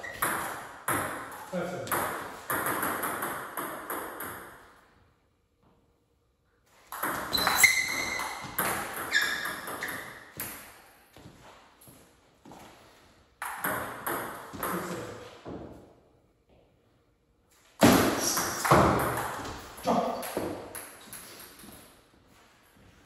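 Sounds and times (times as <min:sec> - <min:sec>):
shoes squeaking: 0:00.0 - 0:00.3, 0:07.0 - 0:10.5.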